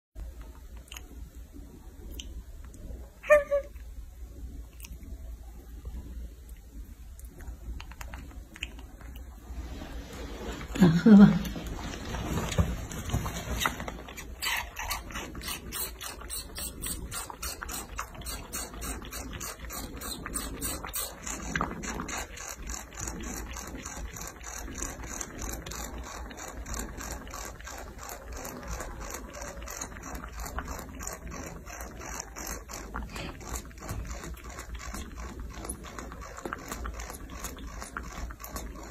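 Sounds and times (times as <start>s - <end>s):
baby monkey suckling bottle: 12.2s - 38.9s.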